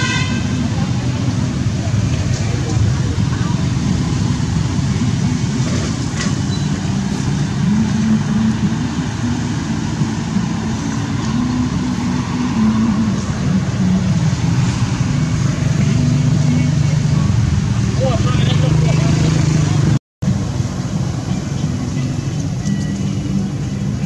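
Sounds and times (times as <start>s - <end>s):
motor vehicle rumble: 0.0s - 24.0s.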